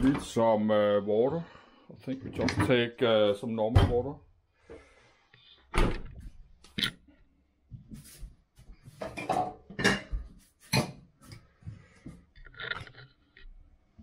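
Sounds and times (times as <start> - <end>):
dishes clattering at a steel sink: 9.0 - 11.1.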